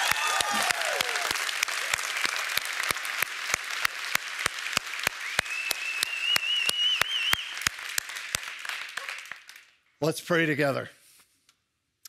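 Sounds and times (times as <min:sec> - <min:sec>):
crowd applauding: 0:00.0 - 0:09.8
long wavering high whistle: 0:05.2 - 0:07.6.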